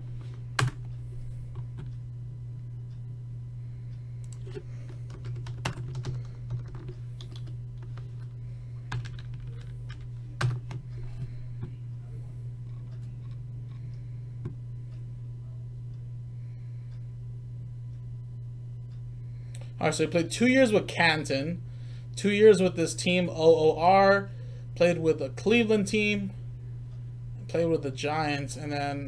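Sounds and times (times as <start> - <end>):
low hum: 0.0 - 29.0
keyboard typing: 0.6 - 0.8, 4.2 - 8.3, 8.9 - 11.3.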